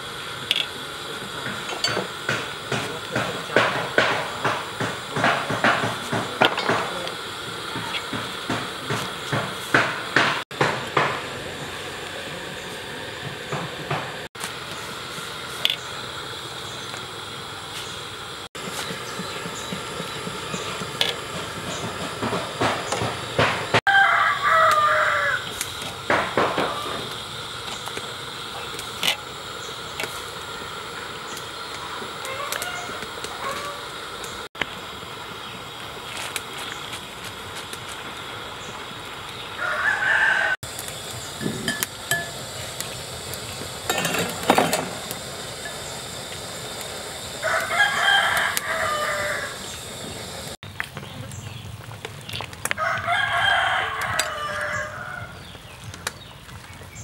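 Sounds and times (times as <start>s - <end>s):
rooster crowing: 23.9s - 25.6s, 32.2s - 34.0s, 39.6s - 40.6s, 47.4s - 49.8s, 52.7s - 55.4s.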